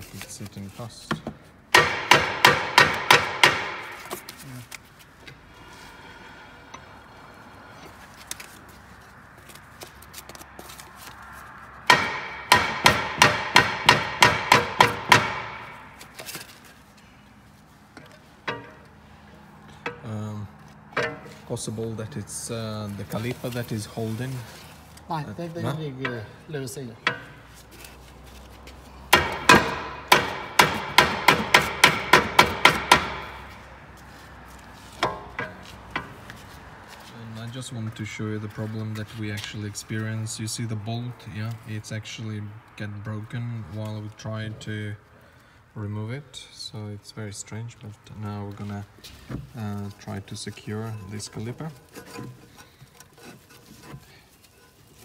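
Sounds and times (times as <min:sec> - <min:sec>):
hammer striking metal disc: 0:01.8 - 0:04.1, 0:11.9 - 0:15.9, 0:18.5 - 0:18.9, 0:29.2 - 0:33.5.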